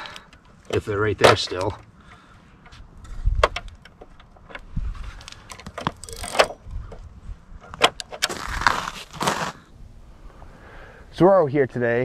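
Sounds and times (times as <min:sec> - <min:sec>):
scraping rustles: 0:07.6 - 0:09.7.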